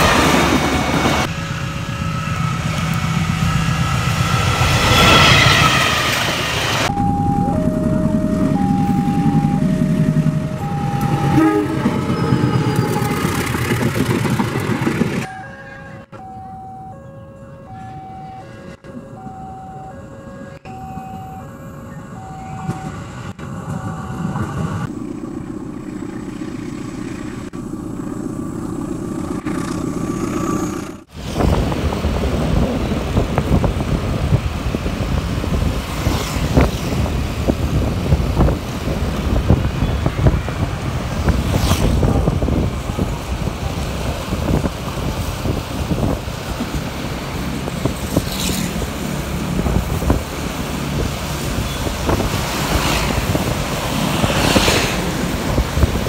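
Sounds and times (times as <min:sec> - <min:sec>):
locomotive rumbling past: 0:00.0 - 0:16.7, 0:17.6 - 0:56.0
road noise from moving vehicle: 0:00.0 - 0:56.0
alternating high and low electronic notes: 0:06.9 - 0:12.5.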